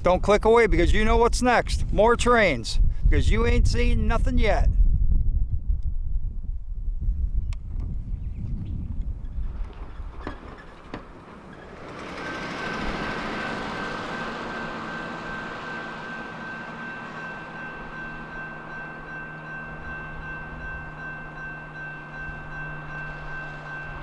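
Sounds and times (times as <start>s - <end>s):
freight train rumble: 9.1s - 24.0s
steady high tone: 11.8s - 24.0s
fainter higher tone: 12.2s - 24.0s.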